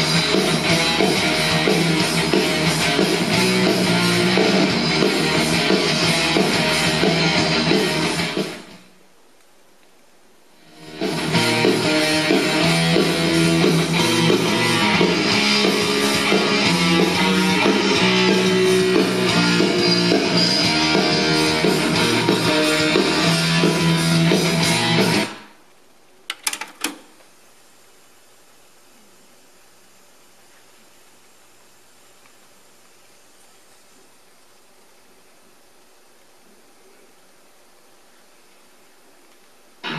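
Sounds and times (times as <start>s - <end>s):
guitar music from cassette: 0.0s - 8.8s, 10.6s - 25.5s
faint tape hiss: 0.0s - 39.9s.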